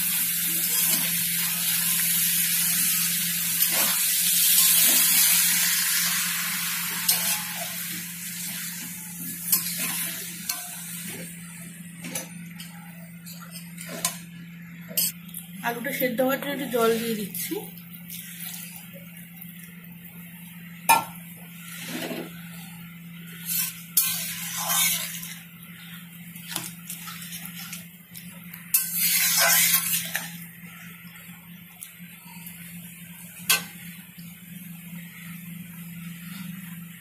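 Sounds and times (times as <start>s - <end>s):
spatula scraping a pan: 21.6s - 22.4s, 23.3s - 25.4s, 28.7s - 30.4s.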